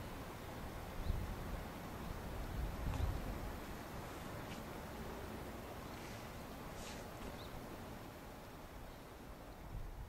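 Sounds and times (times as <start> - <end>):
low rumble and hiss: 0.0 - 10.0
small chirp: 5.8 - 7.6.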